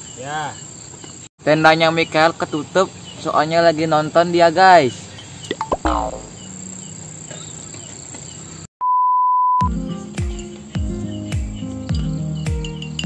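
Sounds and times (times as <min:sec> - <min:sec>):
crickets chirping: 0:00.0 - 0:08.7, 0:09.8 - 0:13.0
electronic beep: 0:05.6 - 0:06.5
background music with low notes: 0:09.7 - 0:13.0.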